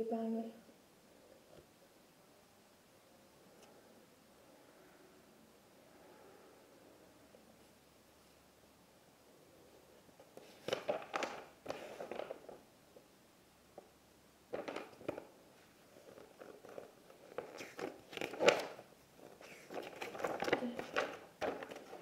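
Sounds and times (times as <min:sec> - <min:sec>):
cardboard packaging rustling: 0:10.2 - 0:12.7, 0:14.5 - 0:22.0.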